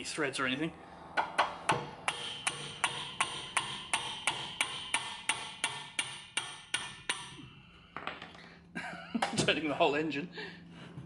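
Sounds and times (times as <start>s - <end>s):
hammer tapping on metal spanner: 1.2s - 8.2s.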